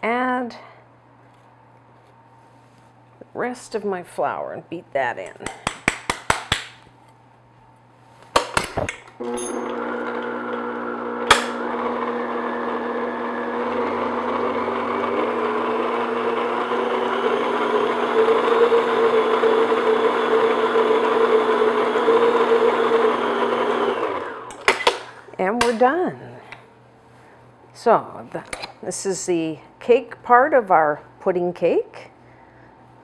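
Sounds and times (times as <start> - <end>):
electric stand mixer running: 9.2 - 24.5.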